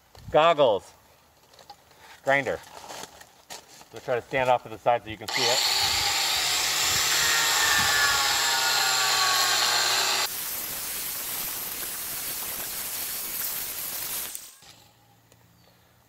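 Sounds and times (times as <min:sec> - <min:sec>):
angle grinder grinding stone: 0:05.3 - 0:14.8.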